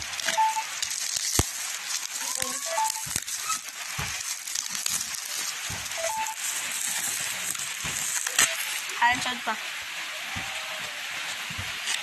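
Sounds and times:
plastic wrapping crinkling: 0.0 - 9.6.

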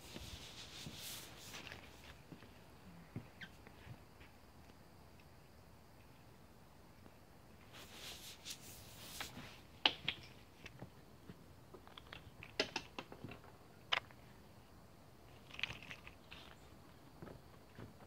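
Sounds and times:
brief rustling: 0.0 - 2.2, 7.7 - 9.6.

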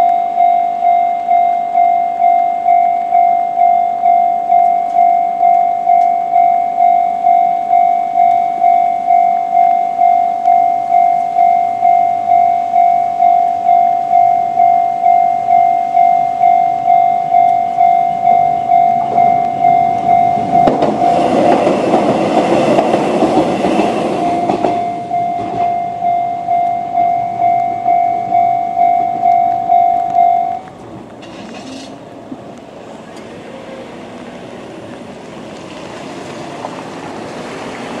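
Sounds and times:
level crossing warning bell: 0.0 - 30.7
electric train rattling: 0.0 - 38.0
cars on wet road: 16.3 - 28.4, 29.0 - 38.0.

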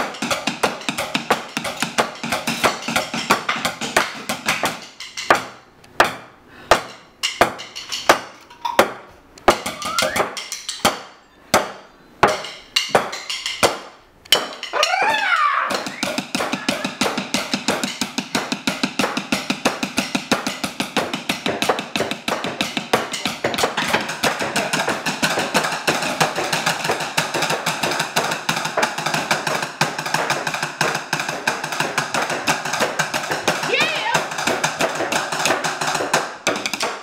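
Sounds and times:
drumsticks on a tabletop: 0.1 - 19.2.

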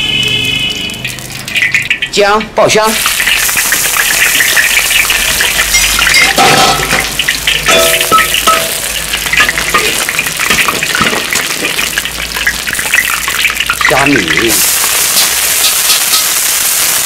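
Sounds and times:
food sizzling in hot oil: 0.1 - 17.0.

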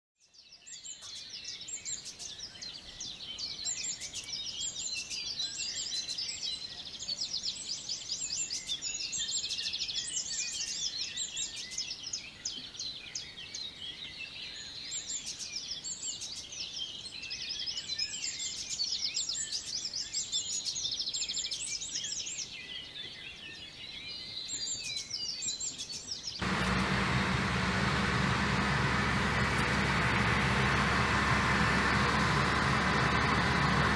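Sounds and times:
songbirds singing: 0.4 - 33.9
heavy machine engine noise: 26.4 - 33.9.

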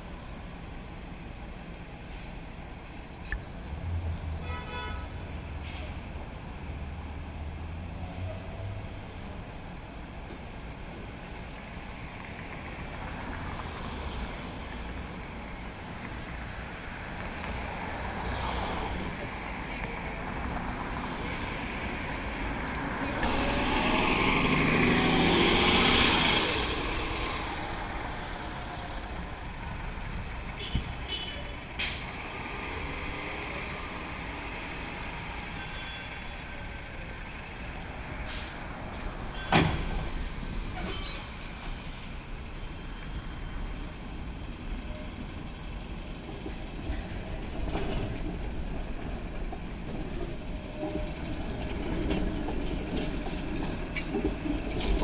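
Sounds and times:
bus passing: 0.0 - 55.0
streetcar rumbling: 0.0 - 55.0
high wheel squeal: 22.9 - 55.0.

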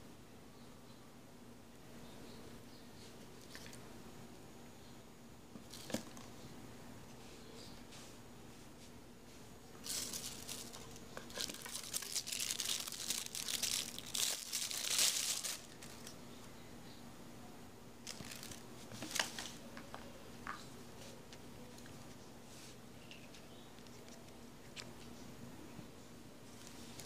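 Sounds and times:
plastic packaging crinkling: 5.6 - 6.2, 9.8 - 16.2, 18.0 - 19.6.

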